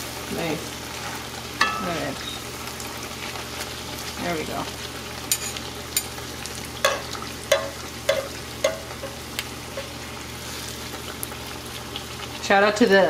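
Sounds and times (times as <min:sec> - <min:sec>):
tortilla sizzling in hot oil: 0:00.0 - 0:13.0
metal spoon and strainer clinking: 0:05.3 - 0:06.1.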